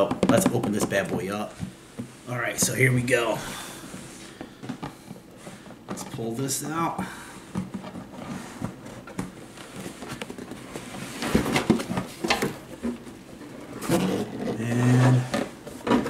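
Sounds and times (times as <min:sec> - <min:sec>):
cardboard scraping and rustling: 0:07.7 - 0:16.0.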